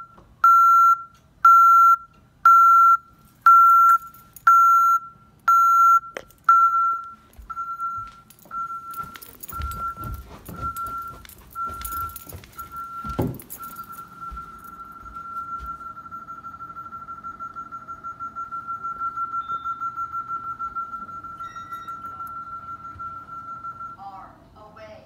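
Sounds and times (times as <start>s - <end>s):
continuous steady tone: 0.0s - 25.0s
keypad beeps: 0.4s - 24.0s
footsteps on carpeted stairs: 7.2s - 15.9s
thump: 13.1s - 13.5s.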